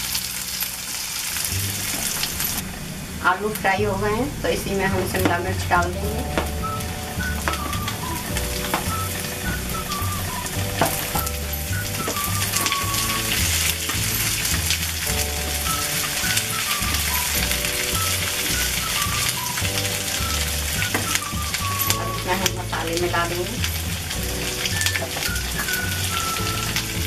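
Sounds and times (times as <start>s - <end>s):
soft background melody: 3.8s - 27.0s
vegetables sizzling in oil: 4.4s - 27.0s.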